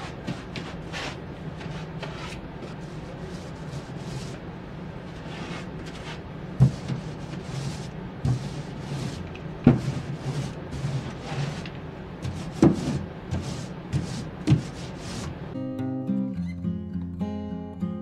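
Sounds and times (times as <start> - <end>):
paintbrush swishing on wood: 0.0 - 4.4, 5.1 - 15.4.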